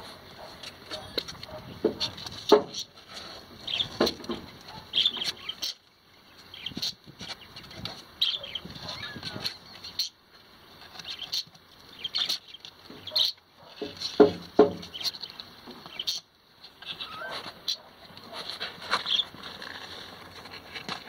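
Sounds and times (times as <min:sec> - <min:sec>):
kittens high-pitched cries: 0:08.4 - 0:09.6, 0:16.8 - 0:17.8
kitten paws pattering on concrete: 0:10.8 - 0:21.0
kittens scrabbling at cardboard: 0:17.4 - 0:21.0.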